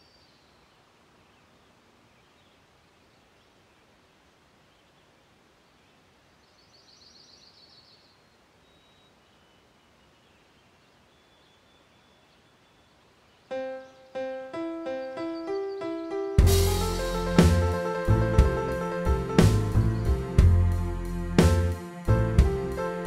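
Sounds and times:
background hiss: 0.0s - 23.0s
piano single notes: 13.5s - 20.7s.

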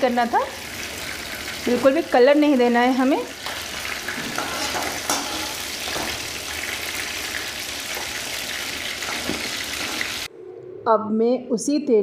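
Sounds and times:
vegetables sizzling in oil: 0.0s - 10.3s
spatula scraping and tapping pan: 3.4s - 6.2s.

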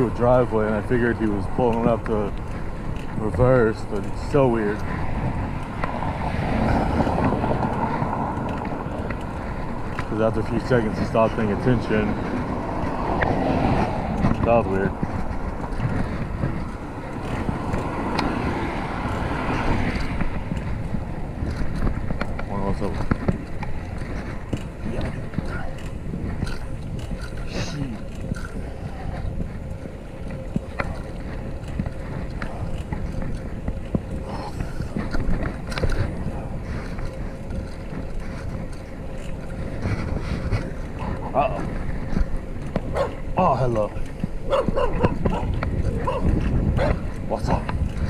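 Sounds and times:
tyres rumbling on road: 0.0s - 48.0s
wind on microphone: 0.0s - 48.0s
car passing by: 5.0s - 24.3s.

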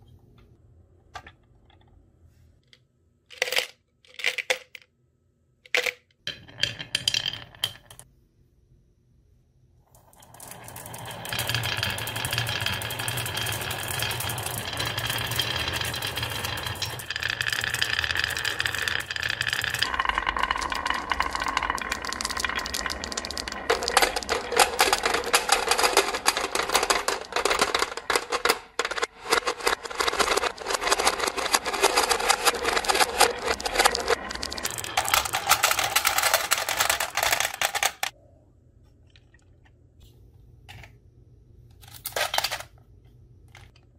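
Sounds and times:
marbles rattling on wood: 5.7s - 8.0s, 10.2s - 38.1s
marbles rolling tone: 6.3s - 8.0s, 10.0s - 38.2s.

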